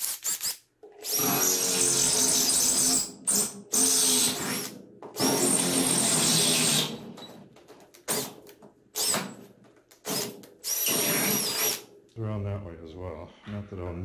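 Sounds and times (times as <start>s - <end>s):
cordless drill boring into wood: 0.0s - 7.0s, 9.0s - 9.2s, 10.0s - 11.8s.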